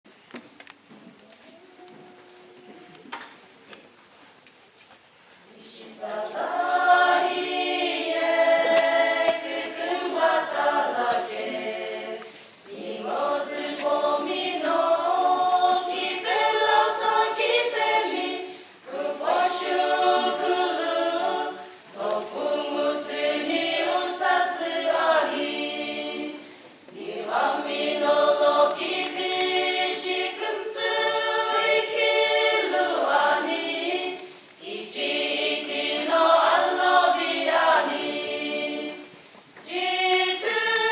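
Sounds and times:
women's choir singing a cappella: 5.5 - 40.9.

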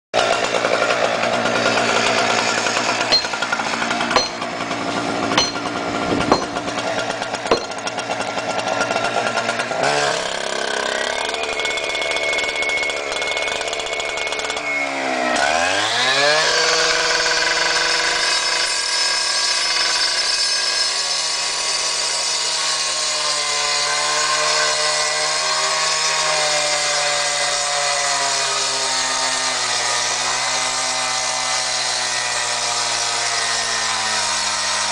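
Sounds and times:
saw blade cutting concrete: 0.2 - 6.8, 7.5 - 34.9
sharp knocks: 3.1 - 3.5, 4.2 - 4.5, 5.4 - 6.7, 7.5 - 7.8.

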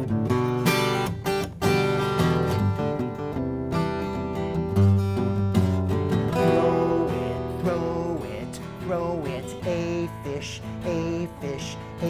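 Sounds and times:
acoustic guitar strumming: 0.0 - 12.0
wavering sliding melody: 6.3 - 8.9.

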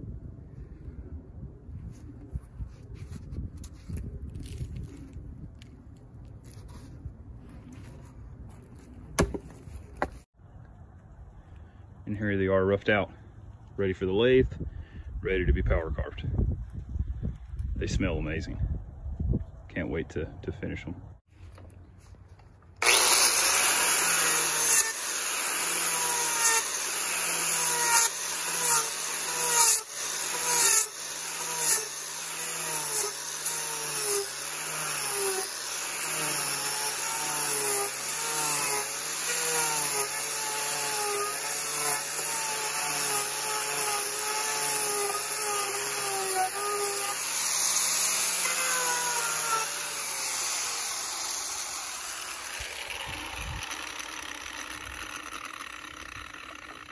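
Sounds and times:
angle grinder motor: 22.8 - 56.9
rasping of cut wood: 22.8 - 56.9.

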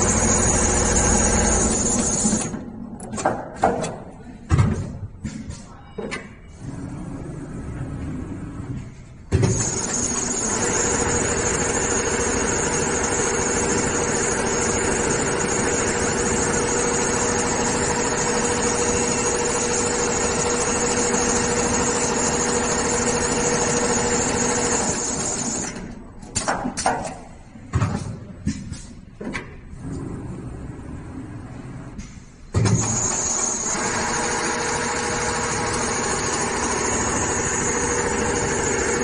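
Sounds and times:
sewing machine running with whine: 0.0 - 2.6, 9.4 - 25.9, 32.7 - 39.0.

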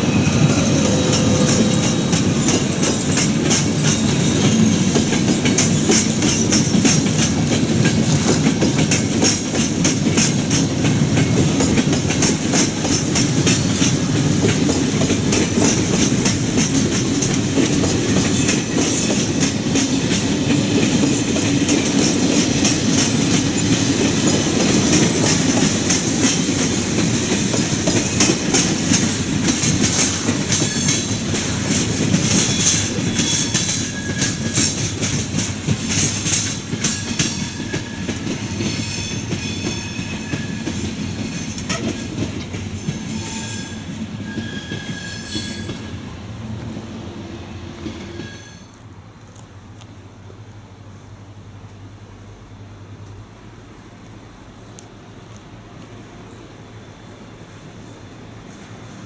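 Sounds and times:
train wheels clicking over rail joints: 0.0 - 46.9
train rumble: 0.0 - 59.0.

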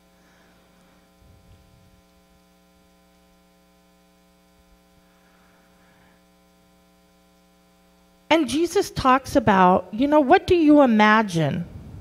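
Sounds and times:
electrical mains hum: 0.0 - 12.0
faint low rustle: 1.2 - 2.2.

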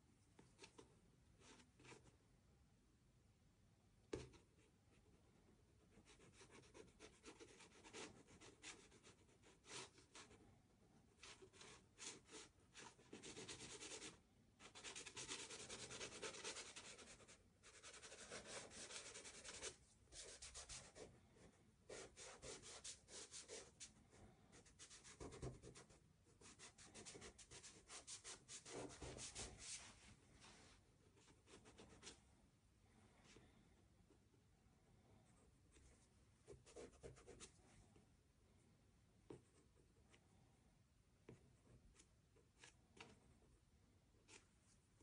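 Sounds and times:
pastel scratching on paper: 11.2 - 21.1, 21.9 - 23.9, 24.6 - 29.9.

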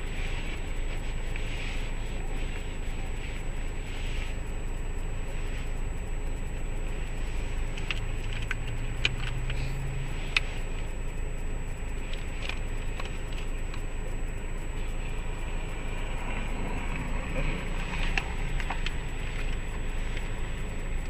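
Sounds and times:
car engine idling: 0.0 - 21.0
light clicks and taps: 6.4 - 11.0.

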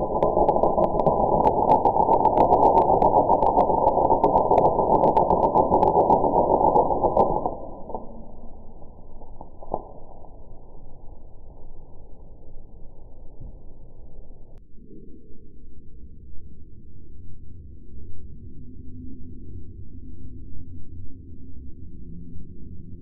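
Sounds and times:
slowed welding arc rush: 0.0 - 14.6.

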